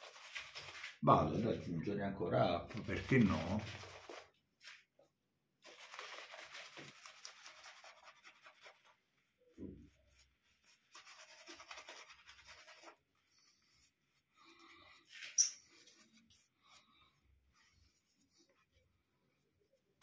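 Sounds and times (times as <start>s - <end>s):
shaving brush swishing lather: 0.0s - 1.0s, 2.7s - 4.3s, 5.6s - 18.9s.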